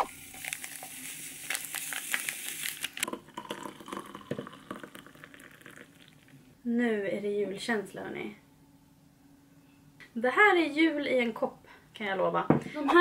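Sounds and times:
liquid pouring with hiss: 0:00.0 - 0:06.3.

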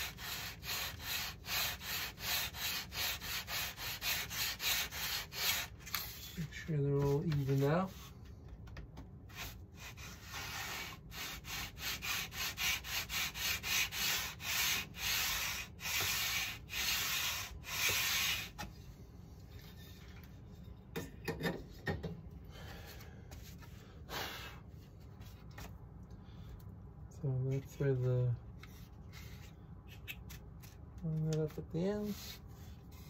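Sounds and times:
sanding block rubbing on wood: 0:00.0 - 0:08.1, 0:09.3 - 0:18.6, 0:31.8 - 0:33.0.

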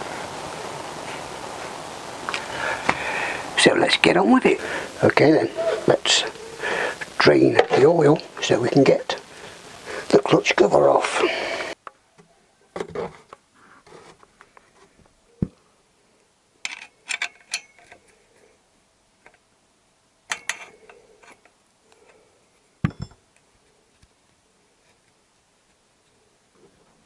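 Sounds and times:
spanner clinking on bolt: 0:20.3 - 0:20.7.

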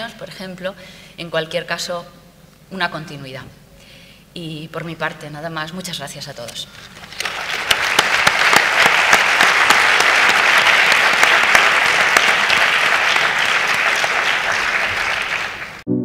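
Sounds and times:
audience applause: 0:07.1 - 0:15.8.

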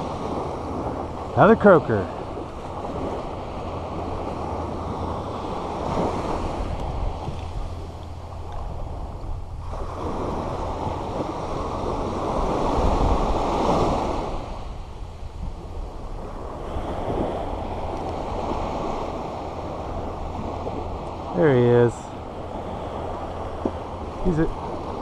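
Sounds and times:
small waves washing up a beach: 0:00.0 - 0:25.0.

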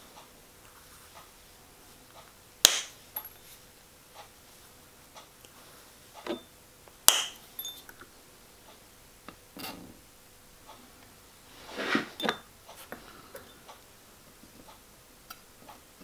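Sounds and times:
side cutters snipping wire: 0:07.1 - 0:07.4
metal pieces clinking on glass dish: 0:07.6 - 0:07.9.

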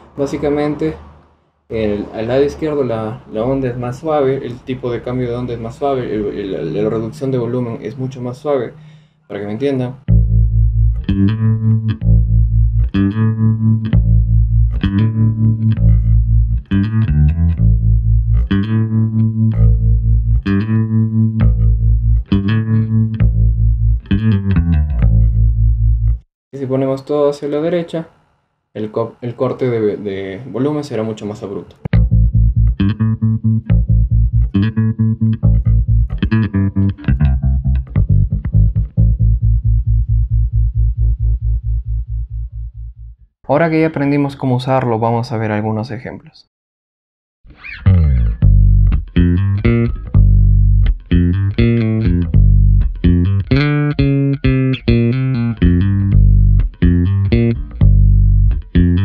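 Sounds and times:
electric bass with tremolo: 0:01.8 - 0:08.9, 0:10.0 - 0:26.2, 0:31.9 - 0:43.3, 0:47.5 - 0:59.0.

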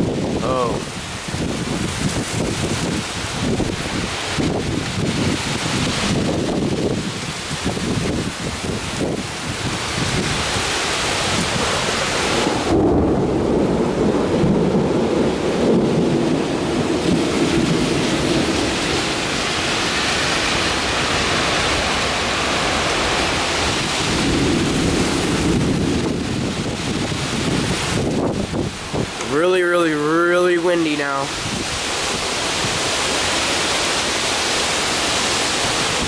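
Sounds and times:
steady rain: 0:00.0 - 0:36.0
thunder rumbling: 0:00.0 - 0:36.0.

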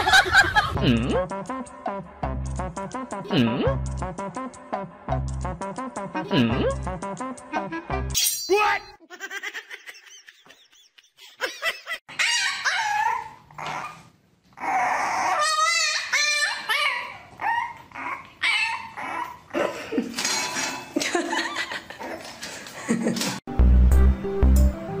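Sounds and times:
puppies whining and yipping: 0:12.1 - 0:19.6.

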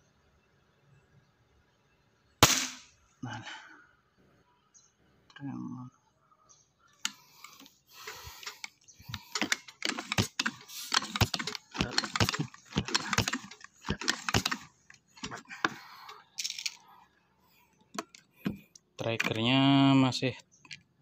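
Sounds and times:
air rifle pumping clicks: 0:07.0 - 0:16.8, 0:17.7 - 0:19.4.

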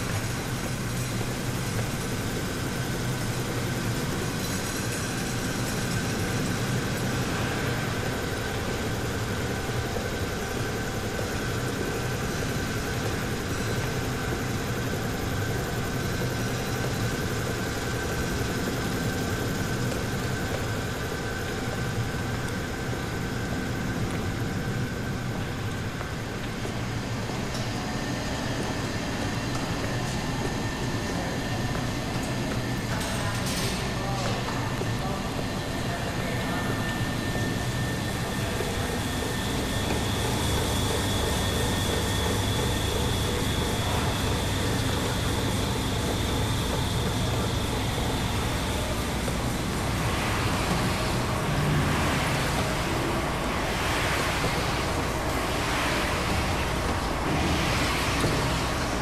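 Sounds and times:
high machine whine: 0:00.0 - 0:59.0
textile machinery din: 0:28.6 - 0:59.0.

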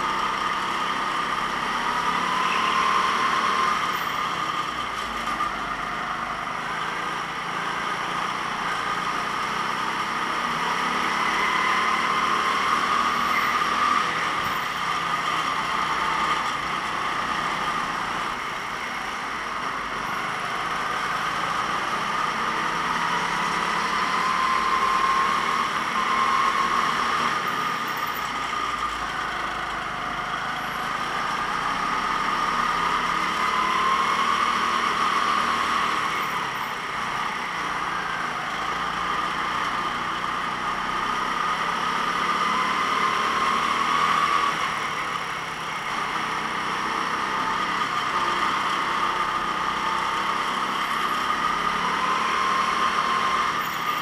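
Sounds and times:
kart engine racing: 0:00.0 - 0:54.0.

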